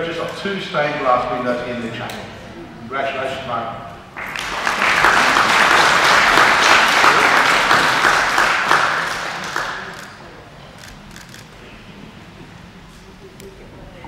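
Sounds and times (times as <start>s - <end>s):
audience applauding: 4.2s - 10.3s.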